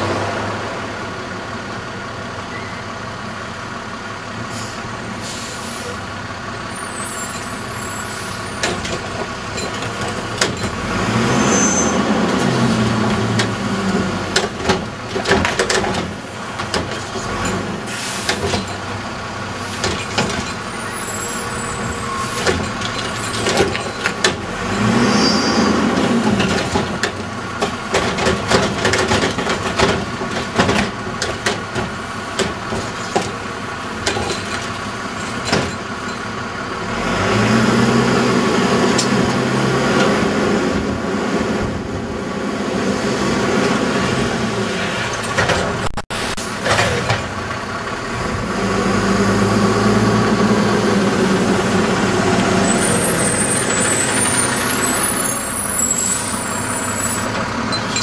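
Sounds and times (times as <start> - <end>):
diesel engine revving: 0.0 - 58.0
high squeal: 6.7 - 8.6, 11.3 - 12.1, 20.7 - 22.5, 24.9 - 26.0, 52.6 - 58.0
metal clanks of cart tipping: 34.0 - 36.3.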